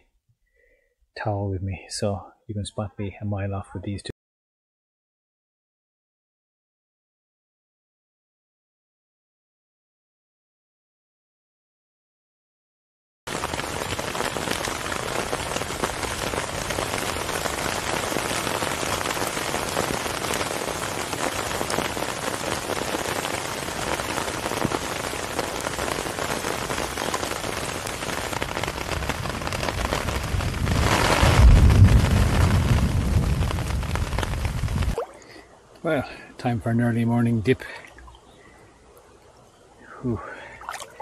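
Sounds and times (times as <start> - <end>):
heavy rain on tarp: 13.3 - 36.2, 40.1 - 41.0
thunder rumbling: 28.5 - 35.0.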